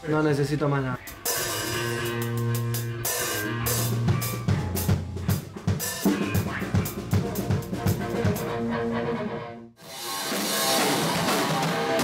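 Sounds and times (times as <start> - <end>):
electric bass and guitar: 1.0 - 12.0
drums hitting hard: 1.2 - 8.6, 10.2 - 12.0.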